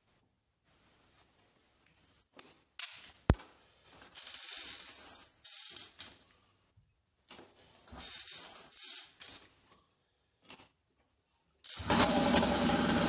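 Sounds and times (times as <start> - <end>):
high-pitched squeaks: 4.2 - 6.0, 8.0 - 9.2.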